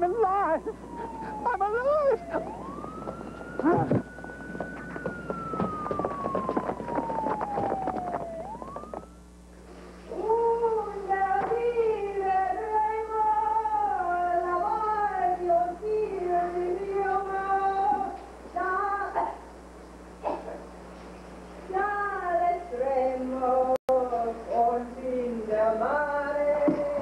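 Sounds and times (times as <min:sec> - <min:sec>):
clatter and noise: 0:02.2 - 0:09.1.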